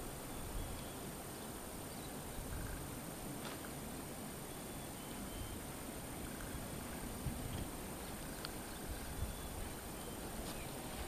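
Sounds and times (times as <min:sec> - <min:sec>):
wind rumbling on microphone: 0:00.0 - 0:11.0
faint clicks: 0:07.5 - 0:08.6.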